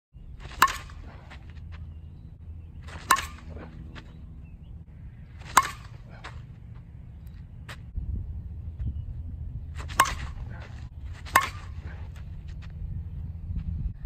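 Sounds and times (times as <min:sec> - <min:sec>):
bat cracking on softball: 0:00.4 - 0:01.8, 0:02.8 - 0:04.1, 0:05.4 - 0:06.4, 0:09.8 - 0:12.7.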